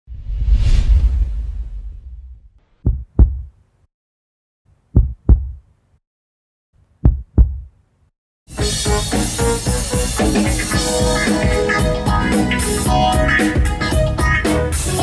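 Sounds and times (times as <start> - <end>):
whoosh: 0.1 - 2.6
heartbeat double thumps: 2.8 - 3.5, 4.9 - 5.6, 7.0 - 7.7
band music: 8.5 - 15.0.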